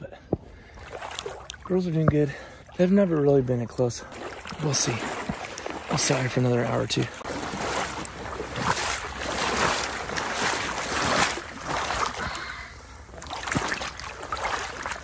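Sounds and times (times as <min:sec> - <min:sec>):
water sloshing from wading: 0:00.6 - 0:15.0.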